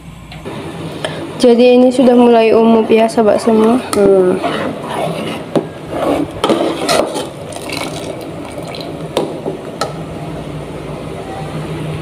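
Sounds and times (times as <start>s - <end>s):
low steady hum: 0.0s - 12.0s
metal ladle scraping a pot: 3.4s - 8.0s.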